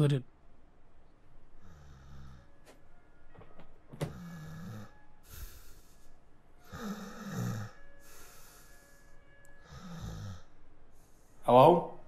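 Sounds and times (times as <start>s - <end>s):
heavy snoring: 1.6s - 2.5s, 4.1s - 6.0s, 6.6s - 9.0s, 9.6s - 10.6s
hissing breath: 4.1s - 11.4s.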